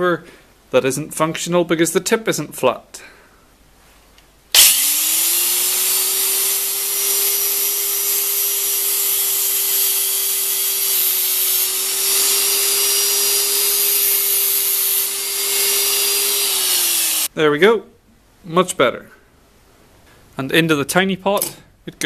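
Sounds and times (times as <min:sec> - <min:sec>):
angle grinder grinding steel: 0:04.6 - 0:17.3.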